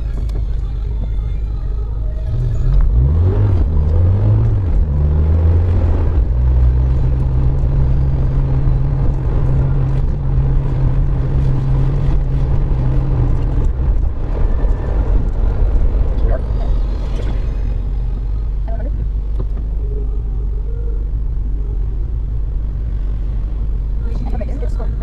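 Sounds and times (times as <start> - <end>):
tyre noise on wet road: 0.0 - 19.8
car engine from inside cabin: 0.0 - 25.0
road rumble: 0.0 - 25.0.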